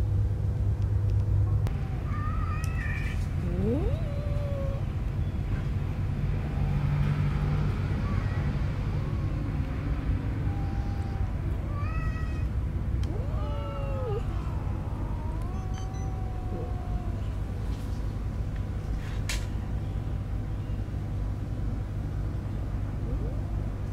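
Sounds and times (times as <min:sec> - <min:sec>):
low steady rumble: 0:00.0 - 0:06.6, 0:07.6 - 0:23.9
kittens mewing: 0:01.7 - 0:04.9, 0:08.1 - 0:17.6.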